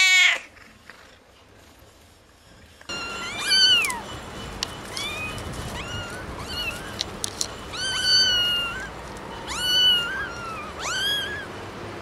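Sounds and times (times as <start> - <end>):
kittens meowing: 2.9 - 4.1, 4.9 - 7.1, 7.7 - 11.6.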